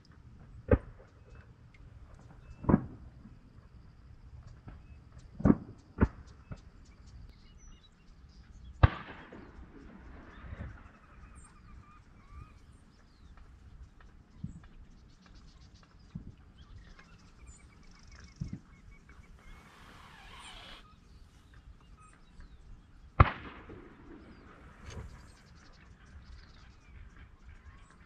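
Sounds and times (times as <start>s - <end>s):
sharp bangs with echo: 8.8s - 9.6s, 23.2s - 25.4s
faint wavering bird calls: 9.4s - 28.0s.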